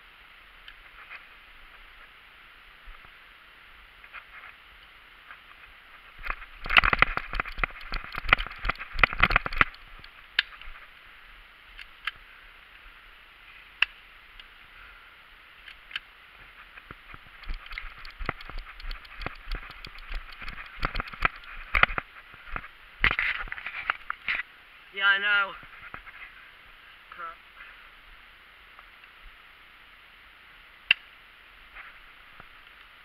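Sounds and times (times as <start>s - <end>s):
twigs snapping: 6.2s - 10.7s, 17.3s - 22.0s.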